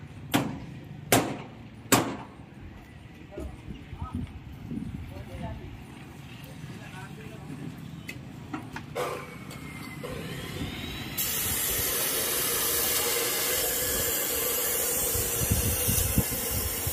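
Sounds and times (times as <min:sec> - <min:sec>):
cutter hiss on steel: 0:09.0 - 0:16.9.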